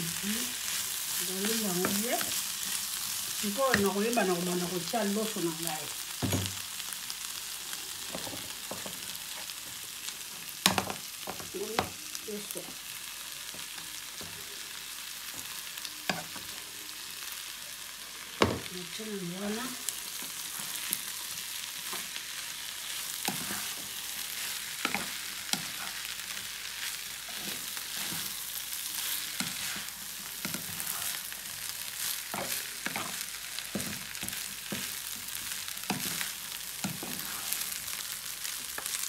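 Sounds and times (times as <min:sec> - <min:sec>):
food sizzling in a frying pan: 0:00.0 - 0:39.0
spatula scraping a pan: 0:22.8 - 0:33.2, 0:35.9 - 0:37.8.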